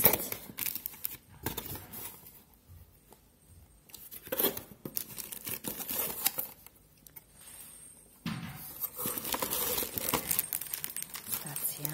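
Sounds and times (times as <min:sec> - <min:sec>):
plastic packaging crinkling: 0:00.0 - 0:02.1, 0:04.1 - 0:06.7, 0:08.9 - 0:11.9
cardboard rustling: 0:08.8 - 0:11.9.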